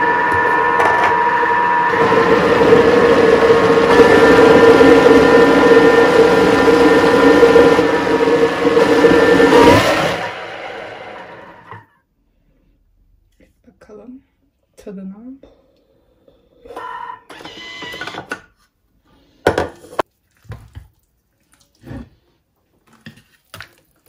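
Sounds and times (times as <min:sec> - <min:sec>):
food processor motor whining: 0:00.0 - 0:11.9, 0:16.6 - 0:18.4.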